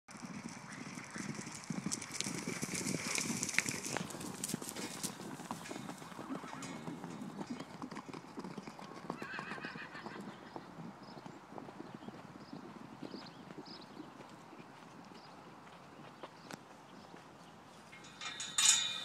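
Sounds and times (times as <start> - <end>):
horses galloping on dirt: 0.1 - 18.6
horse whinnying: 6.1 - 6.8, 9.1 - 10.3.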